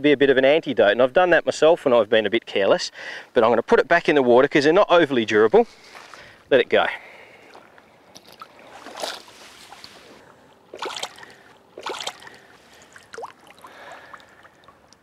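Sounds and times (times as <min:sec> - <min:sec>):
shallow water splashing: 0:07.3 - 0:15.0.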